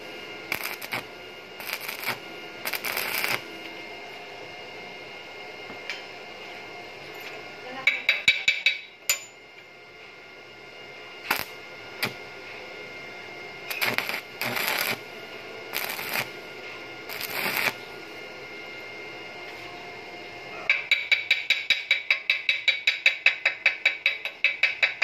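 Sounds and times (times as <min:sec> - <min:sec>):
arc welding crackling: 0:00.0 - 0:04.2, 0:11.2 - 0:12.6, 0:13.5 - 0:18.3.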